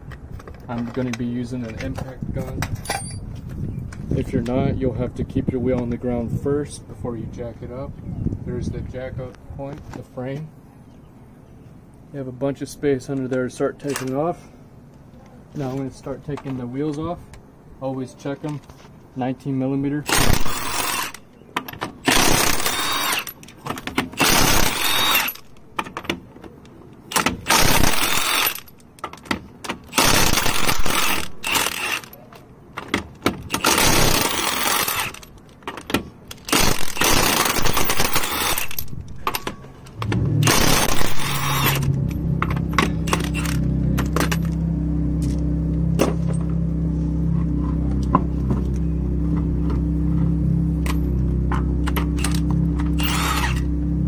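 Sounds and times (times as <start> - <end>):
impact wrench rattling bursts: 20.1 - 21.2, 22.0 - 26.2, 27.1 - 28.8, 29.7 - 32.2, 33.2 - 35.4, 36.4 - 44.6, 51.8 - 53.7
steady low hum: 36.7 - 54.0.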